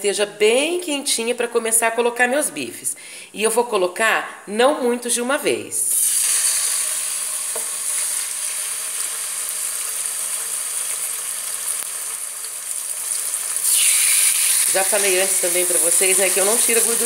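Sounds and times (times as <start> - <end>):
steak sizzling in a pan: 5.9 - 17.0.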